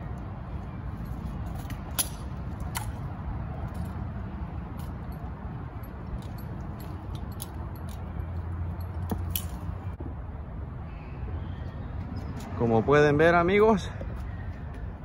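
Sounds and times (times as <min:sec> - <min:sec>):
light clicks and clinks: 0:04.7 - 0:09.8.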